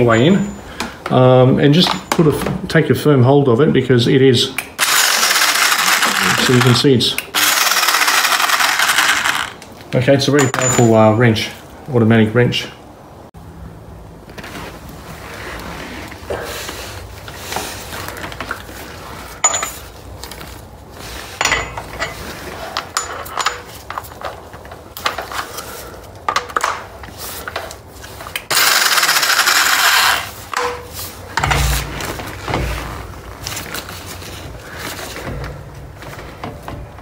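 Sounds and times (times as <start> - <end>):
metal tools clinking: 0.0 - 0.7, 1.7 - 2.4, 10.4 - 11.2, 19.4 - 20.4, 21.4 - 25.6
dull thuds: 31.4 - 33.4.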